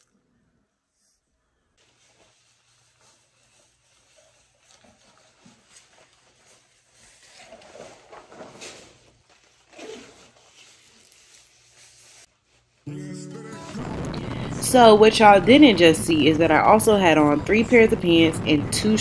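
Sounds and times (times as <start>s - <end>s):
rain jacket fabric rustling: 1.8s - 12.9s.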